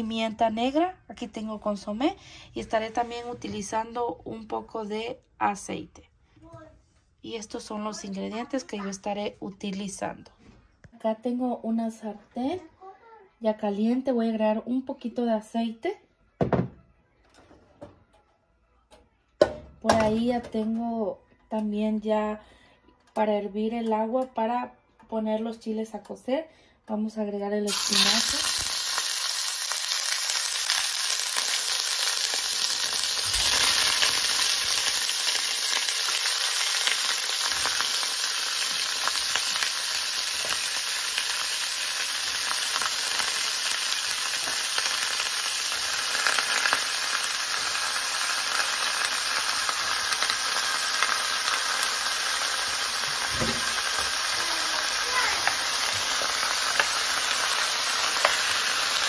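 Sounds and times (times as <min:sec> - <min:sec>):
knocks in pan: 0:19.4 - 0:20.6, 0:53.3 - 0:54.1
meat sizzling in hot oil: 0:27.7 - 0:59.0.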